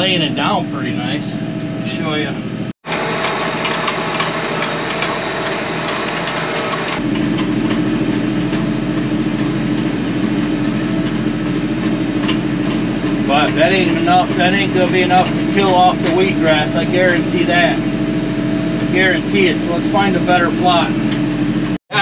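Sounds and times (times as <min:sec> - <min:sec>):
tractor diesel engine: 0:00.0 - 0:22.0.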